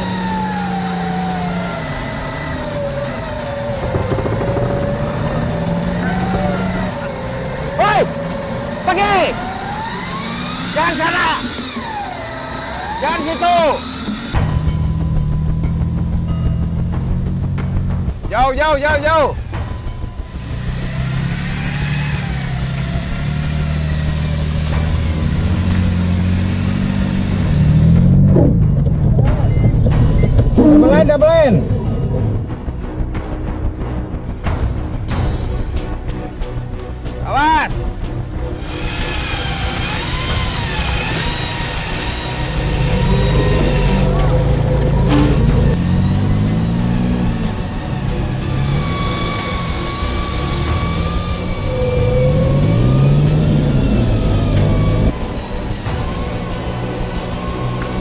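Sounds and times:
winch whine: 0:00.0 - 0:17.9, 0:19.4 - 0:33.6, 0:37.8 - 0:58.0
engine hum: 0:00.0 - 0:58.0
rattling clatter: 0:03.0 - 0:08.8, 0:38.6 - 0:47.9.

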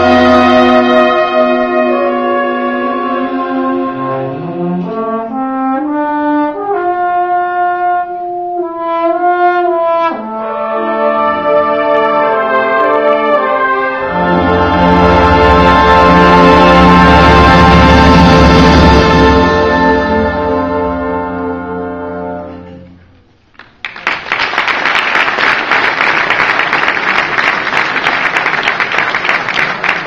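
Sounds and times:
wind band playing: 0:00.0 - 0:23.0.

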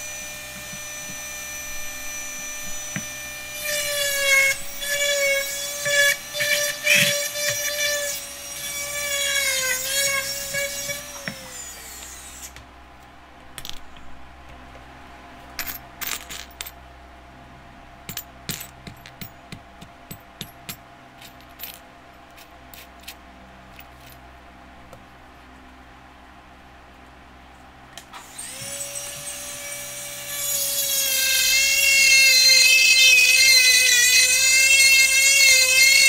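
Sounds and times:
rotary tool whining: 0:00.0 - 0:12.6, 0:28.2 - 0:36.0.

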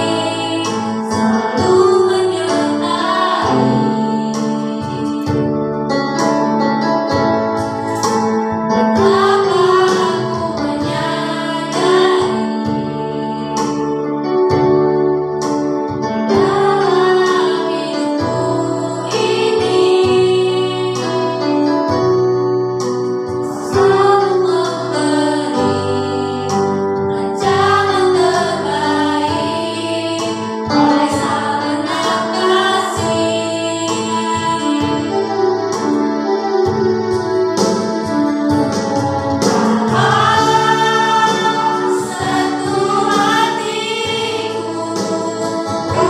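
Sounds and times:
woman and girls singing: 0:00.0 - 0:05.3, 0:08.9 - 0:13.6, 0:16.3 - 0:21.4, 0:27.2 - 0:35.2, 0:39.6 - 0:46.0.

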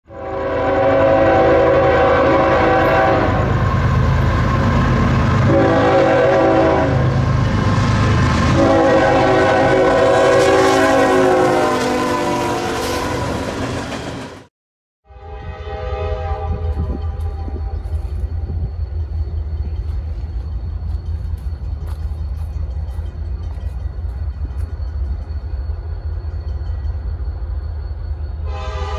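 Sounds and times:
low rumble of train: 0:00.0 - 0:14.5, 0:15.1 - 0:28.9
locomotive air horn blasts: 0:00.1 - 0:03.6, 0:05.4 - 0:07.1, 0:08.5 - 0:13.4, 0:15.0 - 0:18.1, 0:28.4 - 0:28.9.

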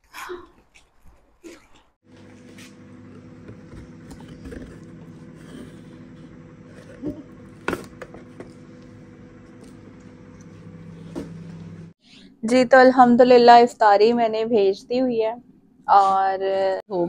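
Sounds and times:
steady low hum: 0:02.0 - 0:14.5.

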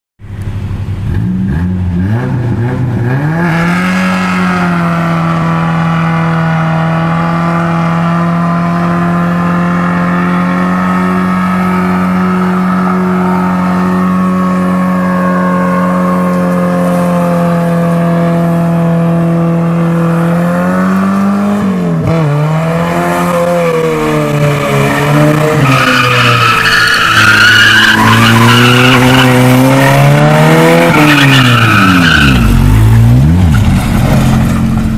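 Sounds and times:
truck engine revving: 0:01.0 - 0:34.9
tyre squeal: 0:24.5 - 0:30.1, 0:30.7 - 0:32.9.

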